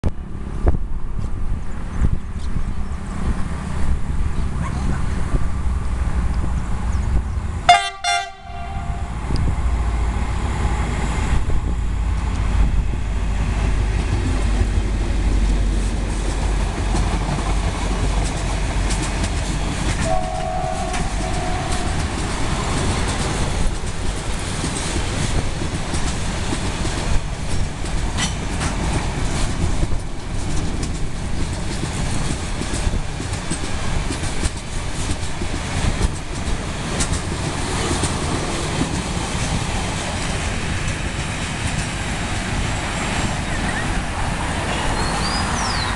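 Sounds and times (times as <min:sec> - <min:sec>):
locomotive engine rumble: 0:00.2 - 0:45.9
train horn blast: 0:07.7 - 0:09.2, 0:20.0 - 0:23.2.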